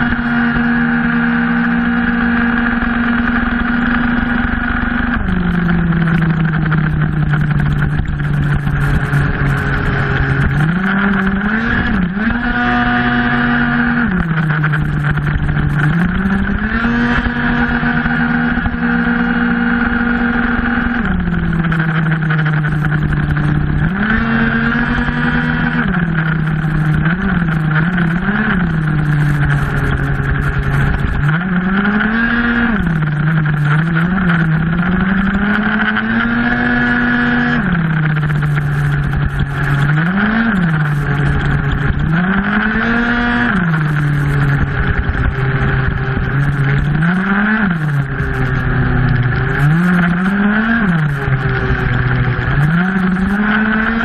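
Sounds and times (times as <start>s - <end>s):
two-stroke scooter engine revving: 0.0s - 54.0s.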